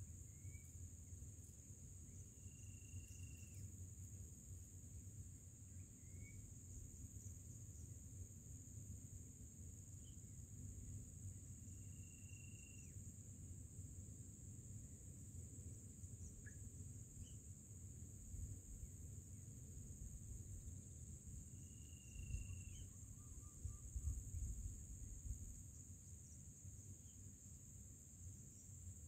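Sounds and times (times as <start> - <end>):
insect drone: 0.0 - 29.0
thin bird whistle: 0.2 - 0.8, 2.1 - 3.7, 5.7 - 6.5, 11.7 - 13.0, 16.2 - 17.4, 21.6 - 24.5
tiny bird chirps: 5.8 - 6.4, 16.3 - 17.4, 21.7 - 24.1.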